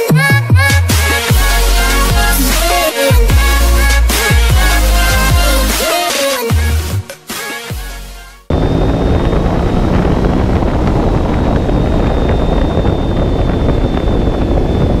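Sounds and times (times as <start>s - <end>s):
faint high whine: 8.5s - 15.0s
motorcycle engine running: 8.5s - 15.0s
wind buffeting microphone: 8.5s - 15.0s.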